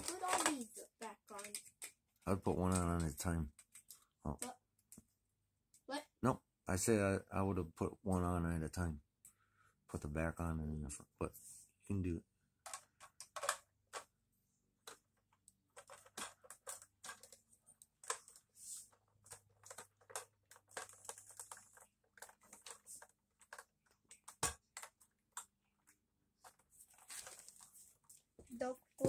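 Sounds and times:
plastic bricks clicking: 0.0 - 2.0, 12.6 - 14.1, 14.8 - 18.5, 19.1 - 26.6.

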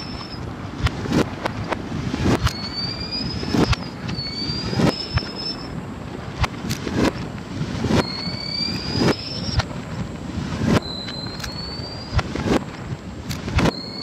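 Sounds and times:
firework whistle rising in pitch: 0.0 - 0.5, 2.2 - 5.8, 7.8 - 9.7, 10.5 - 12.6, 13.5 - 14.0
reversed fireworks bangs: 0.0 - 14.0.

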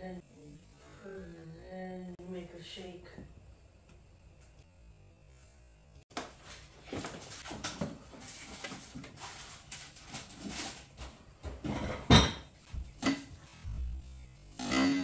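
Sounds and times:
cats scuffling and scratching: 6.2 - 12.0.

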